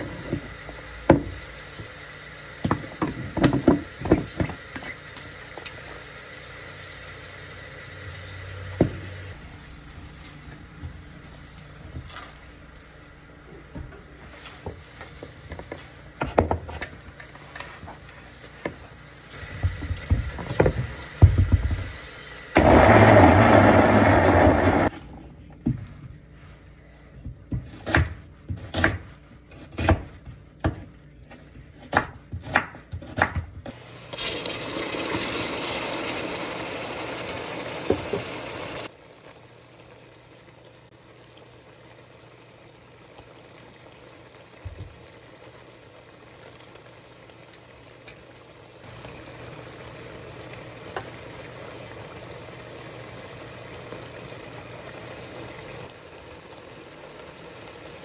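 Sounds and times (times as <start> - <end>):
knife chopping onion on wooden board: 27.2 - 30.9, 31.8 - 33.7.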